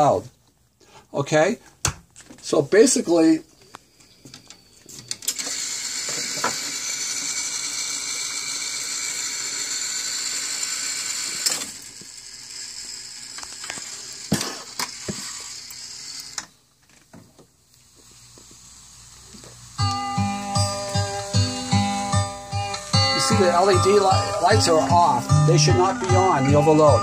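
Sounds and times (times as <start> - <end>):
jukebox mechanism whirring: 5.1 - 16.6.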